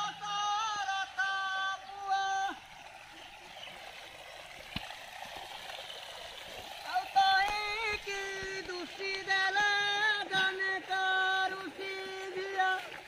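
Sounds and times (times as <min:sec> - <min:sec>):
high voice singing: 0:00.0 - 0:02.7, 0:06.8 - 0:13.0
steady watery hiss: 0:00.0 - 0:13.0.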